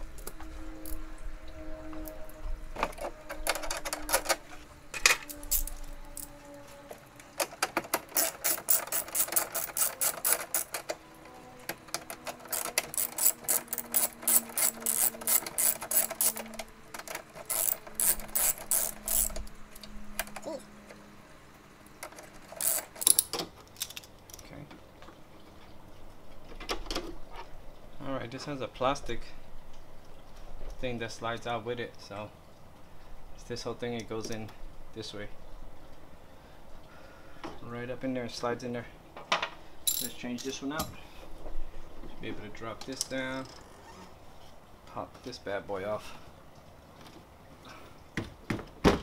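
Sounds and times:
socket ratchet clicking: 8.0 - 10.9, 12.3 - 19.4, 22.5 - 23.3.

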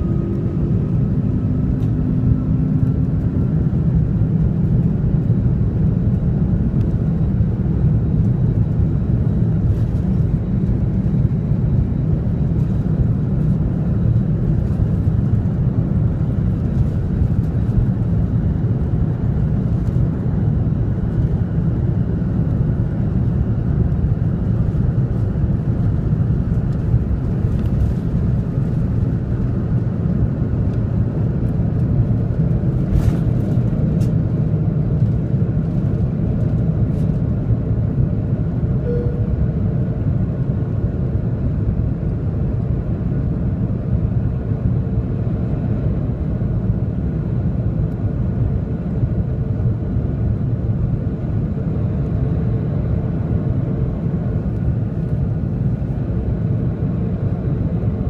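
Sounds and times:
deep rumble of takeoff roll: 0.0 - 58.0
jet engines at takeoff thrust: 0.0 - 58.0.

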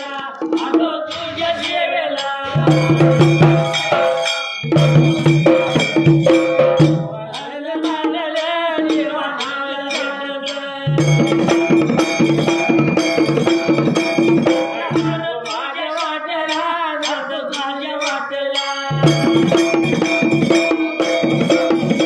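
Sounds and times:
men singing: 0.0 - 22.0
small clashing hand cymbals: 0.0 - 22.0
large drum: 2.5 - 8.0
small hand drum: 2.5 - 9.2, 10.9 - 15.3, 18.9 - 22.0.

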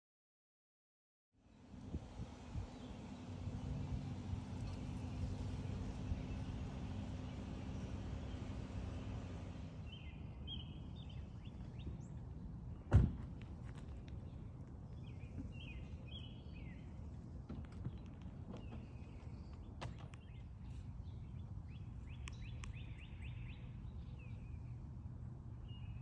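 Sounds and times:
outdoor background noise: 1.4 - 26.0
sharp thump: 12.9 - 13.3
small bird chirping: 20.2 - 24.7.

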